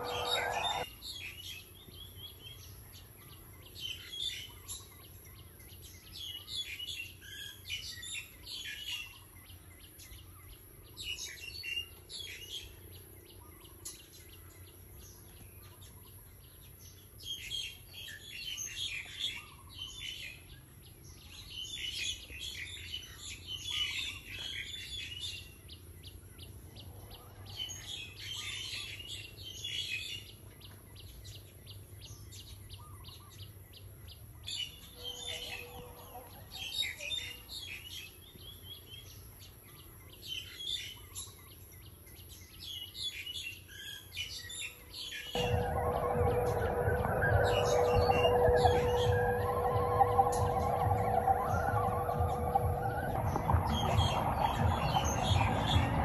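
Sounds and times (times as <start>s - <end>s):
birds chirping: 0.0s - 0.9s, 45.4s - 56.0s.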